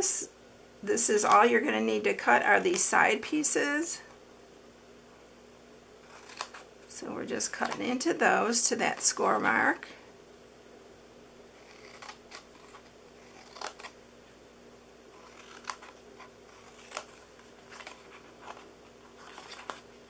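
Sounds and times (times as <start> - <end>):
scissors snipping cardstock: 6.1 - 6.7, 11.6 - 14.0, 15.2 - 18.6.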